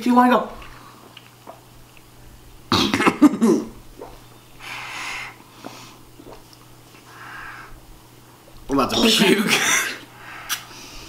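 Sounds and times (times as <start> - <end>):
wheezy burst: 4.6 - 5.4.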